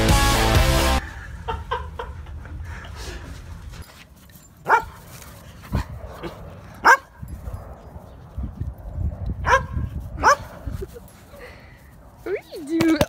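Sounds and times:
dog barking: 0:04.7 - 0:05.0, 0:06.8 - 0:07.2, 0:09.4 - 0:10.5.

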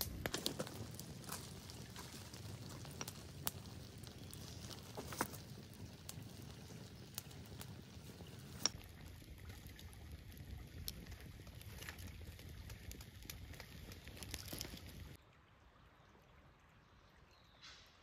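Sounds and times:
sharp pops of fire: 0:00.0 - 0:08.8
campfire crackling: 0:00.0 - 0:15.2.

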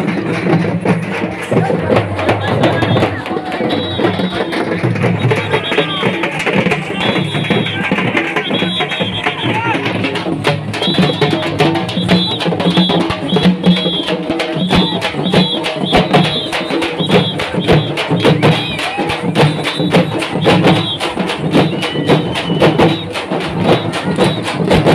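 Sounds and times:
frame drums beating fast rhythm: 0:00.0 - 0:24.9.

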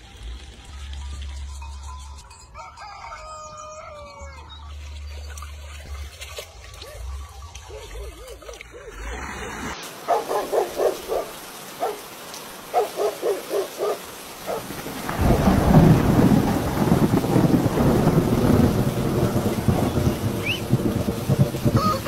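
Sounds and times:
steady rain: 0:00.0 - 0:02.7, 0:04.5 - 0:22.0
thunder rumbling: 0:14.4 - 0:22.0.

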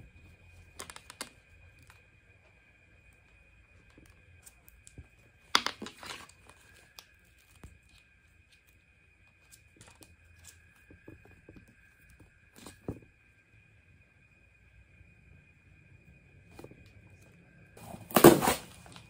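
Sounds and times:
faint high-pitched hum: 0:00.0 - 0:19.0
short ripping noise: 0:17.9 - 0:18.9.

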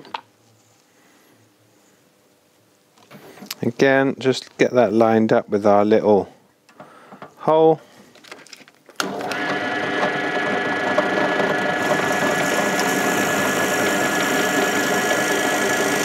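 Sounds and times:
drill bit boring through wood: 0:09.0 - 0:16.0
drill motor humming: 0:09.0 - 0:16.0.

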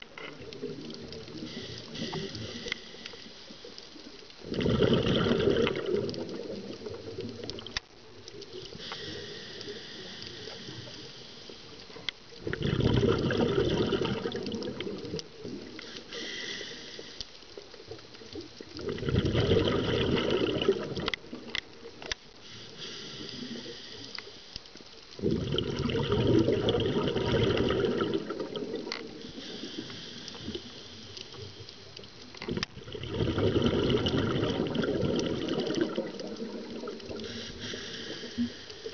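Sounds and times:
regulator breath hiss: 0:01.4 - 0:03.8, 0:08.7 - 0:12.1, 0:15.7 - 0:17.4, 0:22.4 - 0:24.7, 0:29.2 - 0:31.9, 0:37.1 - 0:38.9
rush of exhaled bubbles: 0:04.4 - 0:07.8, 0:12.4 - 0:15.8, 0:18.6 - 0:21.5, 0:25.2 - 0:31.5, 0:32.4 - 0:38.9.

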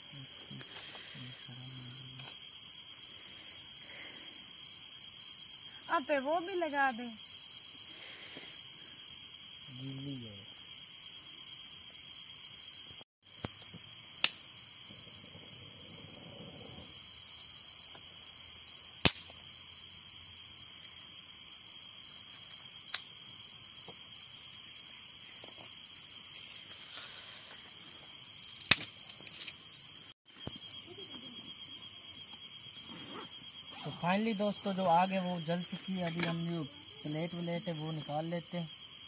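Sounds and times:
crickets chirring: 0:00.0 - 0:39.0
sharp cracks: 0:14.2 - 0:14.4, 0:19.0 - 0:19.4, 0:28.6 - 0:29.6.

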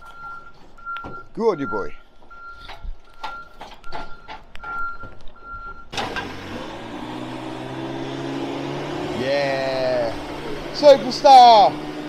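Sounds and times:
warning alarm beeping: 0:00.0 - 0:06.0
diesel engine at raised revs: 0:05.9 - 0:12.0.

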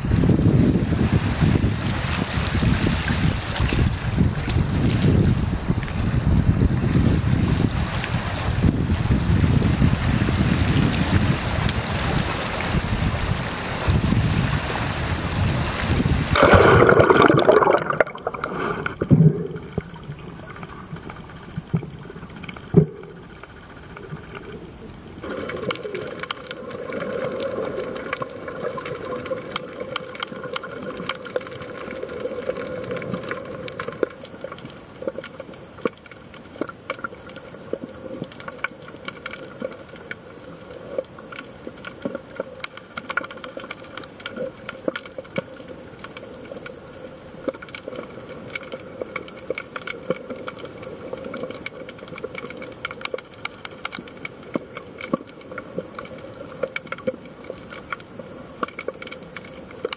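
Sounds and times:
muffled underwater splashing: 0:11.4 - 0:59.9
fine crackling clicks: 0:16.4 - 0:59.9
underwater hiss of moving water: 0:16.4 - 0:59.9.

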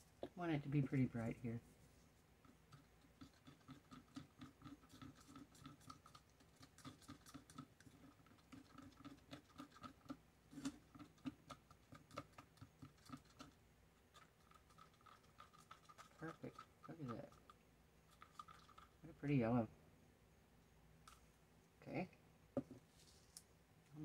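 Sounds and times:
stir stick scraping mixing cup: 0:02.4 - 0:19.6.

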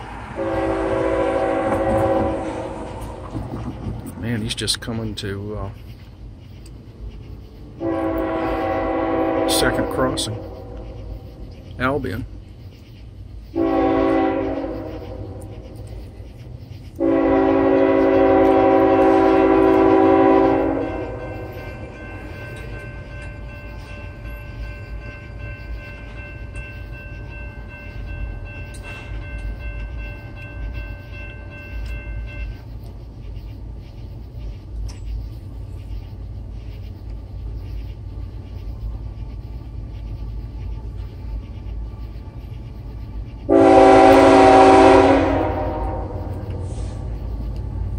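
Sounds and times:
crossing warning bell ringing: 0:00.0 - 0:05.2, 0:13.6 - 0:33.4, 0:43.5 - 0:47.9
train rumbling: 0:00.0 - 0:47.9
locomotive air horn blasts: 0:00.3 - 0:02.9, 0:07.8 - 0:10.8, 0:13.6 - 0:15.4, 0:17.0 - 0:21.9, 0:43.5 - 0:47.1.

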